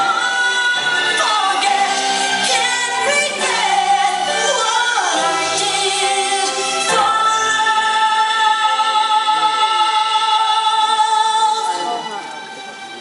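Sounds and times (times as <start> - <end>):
instrumental backing music: 0.0 - 13.0.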